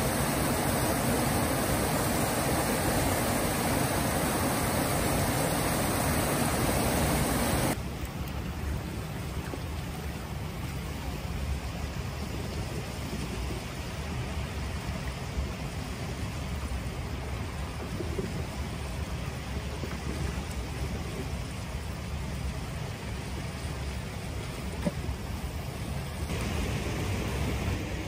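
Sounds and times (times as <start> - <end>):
river water rushing: 0.0 - 12.2, 21.8 - 28.0.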